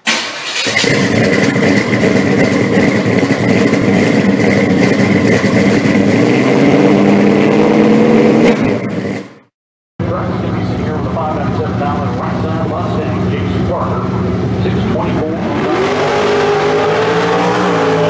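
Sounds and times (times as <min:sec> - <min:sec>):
car engine running: 0:00.6 - 0:18.0
high whine: 0:10.0 - 0:18.0.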